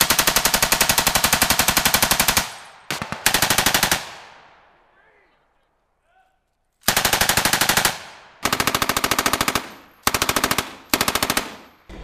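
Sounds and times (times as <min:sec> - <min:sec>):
machine gun bursts with echo: 0:00.0 - 0:04.2, 0:06.9 - 0:12.0.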